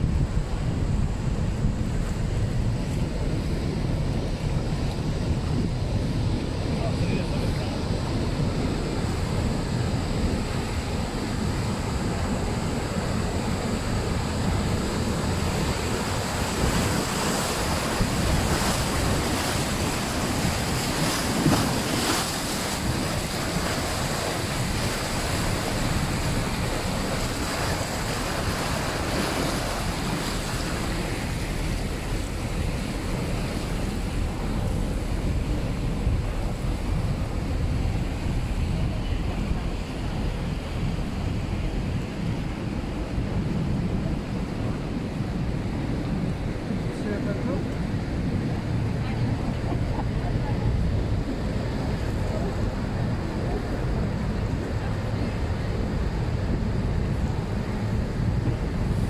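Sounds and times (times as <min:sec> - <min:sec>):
wind buffeting microphone: 0:00.0 - 0:59.0
river water rushing: 0:03.8 - 0:59.0.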